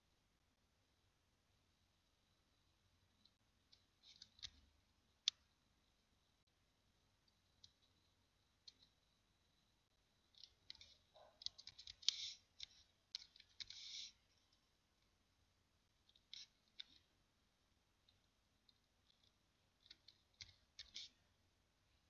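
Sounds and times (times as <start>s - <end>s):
faint keyboard typing: 3.1s - 5.6s, 7.2s - 9.2s, 10.2s - 15.1s, 15.9s - 17.2s, 18.0s - 21.3s.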